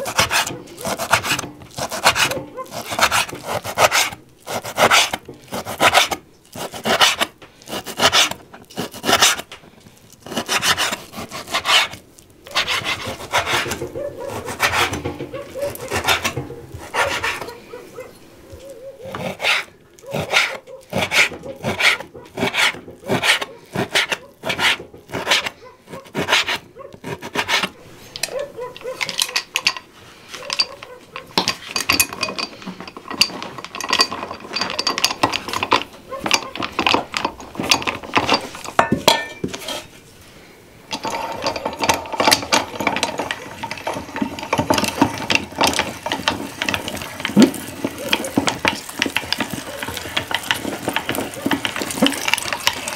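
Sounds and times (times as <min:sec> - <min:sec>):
knife chopping on wooden board: 0:00.0 - 0:09.4
meat grinder grinding: 0:00.0 - 0:17.6, 0:18.6 - 0:27.8, 0:40.9 - 0:52.9
metal clinks and scrapes: 0:00.0 - 0:52.9.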